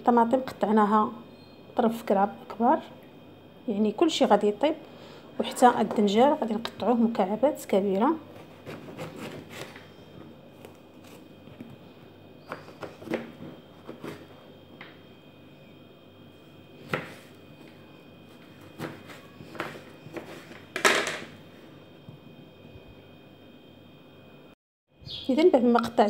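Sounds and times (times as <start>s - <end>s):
knife cutting on cutting board: 8.4s - 9.8s.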